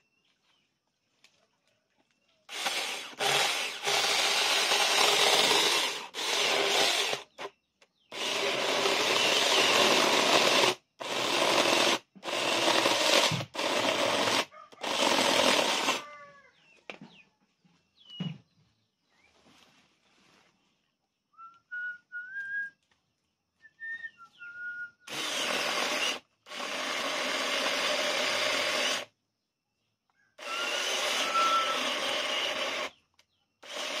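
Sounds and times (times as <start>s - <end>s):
mini chainsaw cutting into log: 2.5s - 16.1s, 25.1s - 29.1s, 30.4s - 33.0s, 33.6s - 34.0s.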